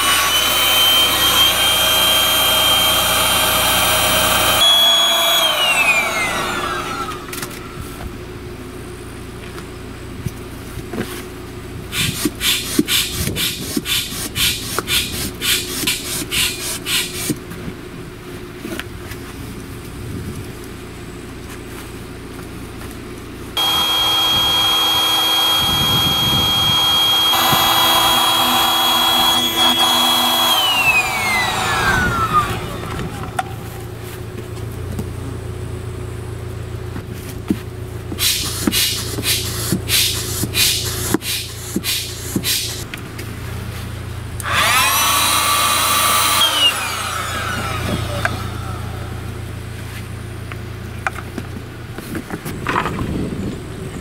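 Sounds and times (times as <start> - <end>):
electric air pump whining: 0.0 - 8.0, 23.6 - 34.3, 38.1 - 42.9, 44.4 - 49.5.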